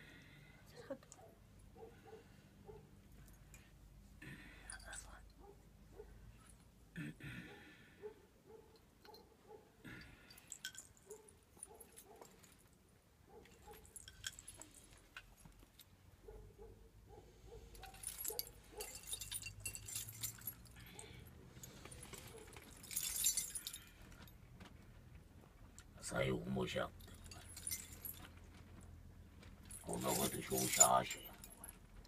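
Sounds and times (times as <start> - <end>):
metal ornaments jingling: 4.6 - 5.4, 10.0 - 12.8, 13.4 - 16.0, 17.7 - 24.4, 26.7 - 28.9, 29.6 - 32.0.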